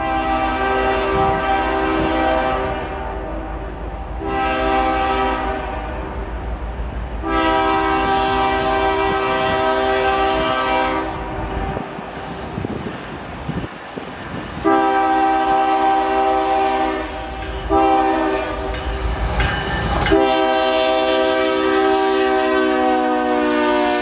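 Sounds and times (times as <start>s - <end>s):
train air horn blasts: 0.0s - 6.4s, 7.2s - 11.9s, 14.6s - 18.8s, 19.9s - 24.0s
wheels clattering on rails: 11.6s - 14.7s, 17.3s - 20.3s.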